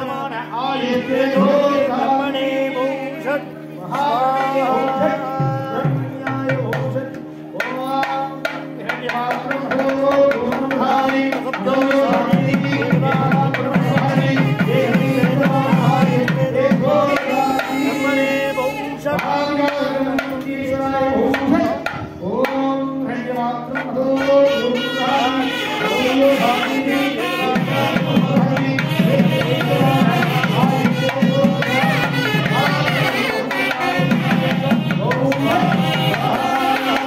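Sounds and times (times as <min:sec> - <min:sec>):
person singing devotional music: 0:00.0 - 0:37.0
steady drum beat: 0:04.8 - 0:22.9, 0:25.7 - 0:37.0.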